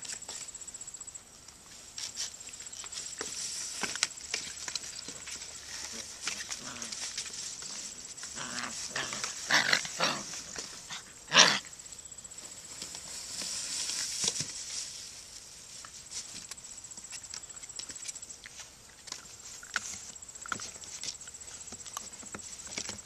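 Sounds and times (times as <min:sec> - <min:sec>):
puppies scuffling: 0:01.6 - 0:11.2.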